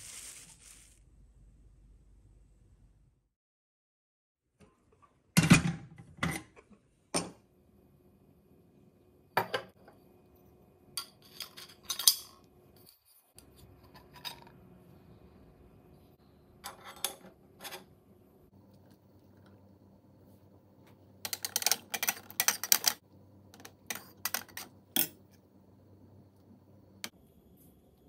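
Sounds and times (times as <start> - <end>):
metal pot parts knocking and clinking: 11.0 - 12.4, 21.2 - 23.0, 23.6 - 25.2.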